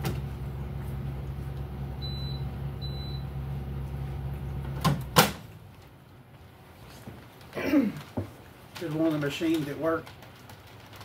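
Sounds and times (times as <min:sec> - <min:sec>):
low machine hum: 0:00.0 - 0:06.7.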